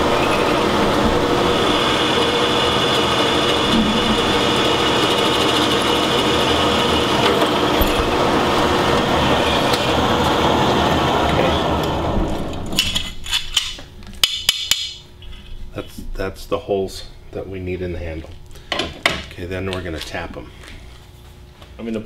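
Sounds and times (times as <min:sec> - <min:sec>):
drill press drilling steel: 0:00.0 - 0:11.9.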